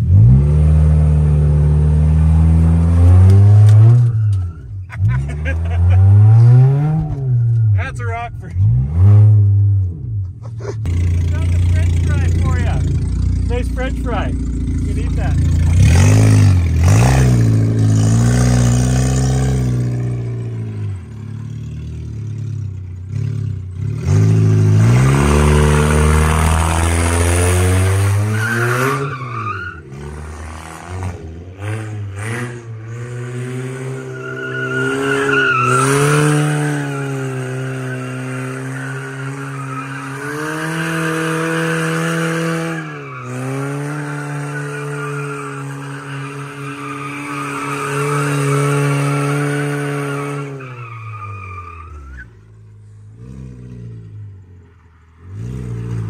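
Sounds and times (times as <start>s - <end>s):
car engine revving hard: 8.5s - 9.7s, 10.9s - 20.9s, 23.1s - 29.2s, 29.9s - 50.6s
tyres spinning and squealing: 24.7s - 30.4s, 33.8s - 52.3s.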